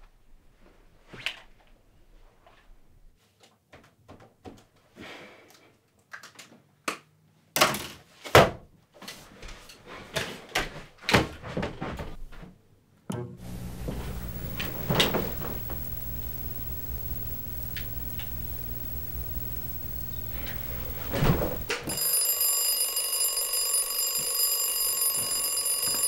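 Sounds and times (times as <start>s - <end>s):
steady low hum: 13.4s - 21.9s.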